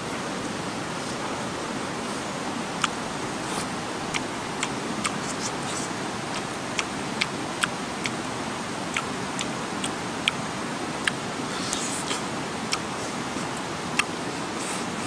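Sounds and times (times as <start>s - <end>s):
steady background hiss: 0.0s - 15.0s
mouth clicks and smacks chewing: 2.7s - 8.2s, 8.9s - 10.4s, 11.0s - 15.0s.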